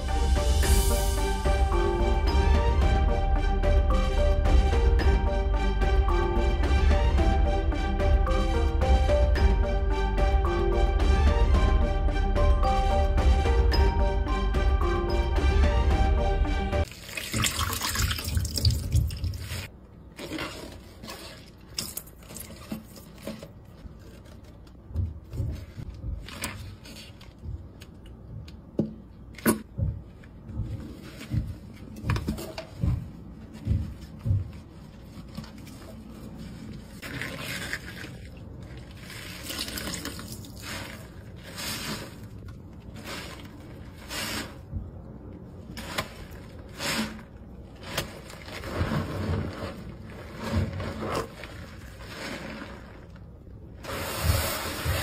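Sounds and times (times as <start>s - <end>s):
water splashing and dripping in sink: 16.8s - 19.7s
scouring pad strokes: 38.8s - 44.7s, 53.8s - 55.0s.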